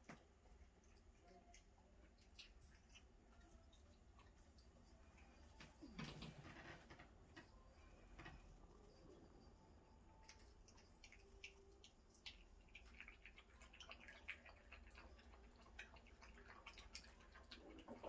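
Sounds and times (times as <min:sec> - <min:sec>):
puppies lapping milk: 0:00.0 - 0:06.6, 0:10.2 - 0:18.0.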